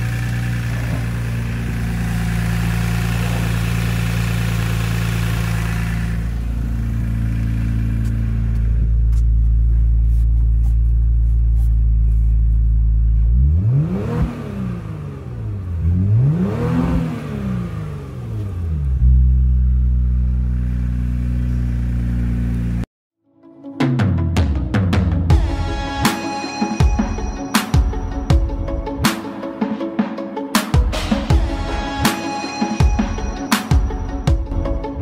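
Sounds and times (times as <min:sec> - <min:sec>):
car engine idling and revving: 0:00.0 - 0:22.9.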